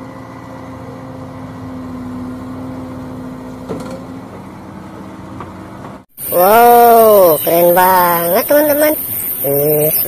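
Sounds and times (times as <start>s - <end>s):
diesel engine running: 0.0s - 10.0s
metal clank: 3.7s - 4.1s.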